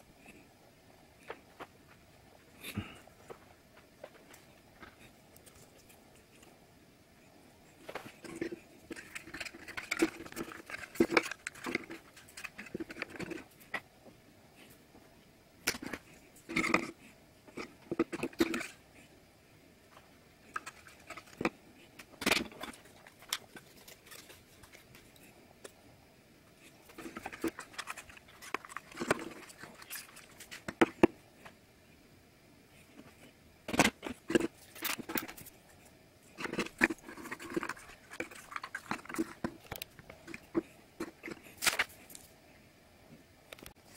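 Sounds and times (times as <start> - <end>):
card pieces clicking and rustling: 36.4 - 42.0.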